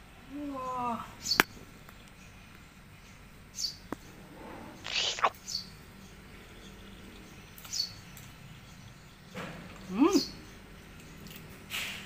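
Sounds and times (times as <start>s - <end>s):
noodles slurped: 4.8s - 5.4s
high bird chirps: 4.9s - 5.6s.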